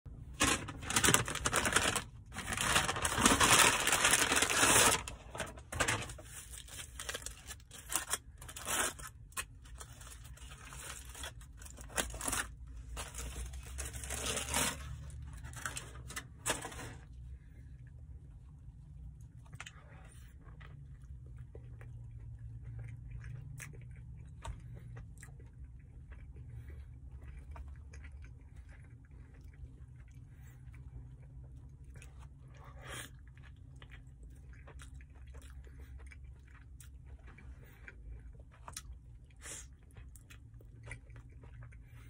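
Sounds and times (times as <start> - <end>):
aluminium foil crinkling and tearing: 0.3 - 17.1.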